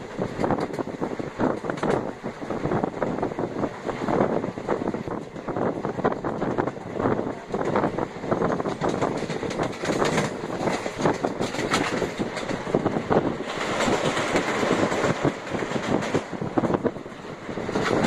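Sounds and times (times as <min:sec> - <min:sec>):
wheels rattling and clacking: 0:00.0 - 0:02.2, 0:05.0 - 0:18.0
train running: 0:00.0 - 0:18.0.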